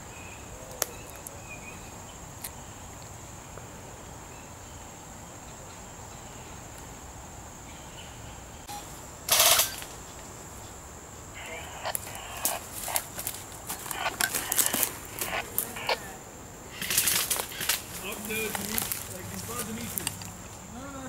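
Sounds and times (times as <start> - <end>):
high-pitched insect drone: 8.1 - 21.0.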